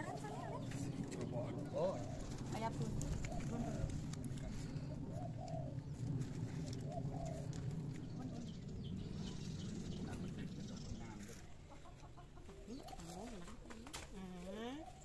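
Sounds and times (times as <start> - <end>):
murmur of voices: 0.0 - 4.9
dove cooing: 0.0 - 15.0.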